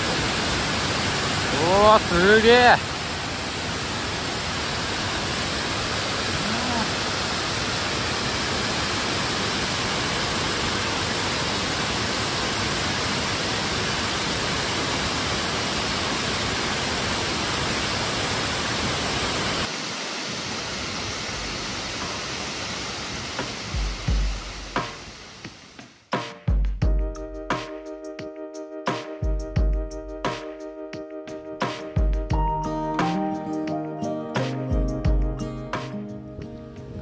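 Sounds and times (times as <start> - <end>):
waterfall rushing: 0.0 - 25.8
music with deep beats: 23.8 - 25.0, 26.2 - 37.0.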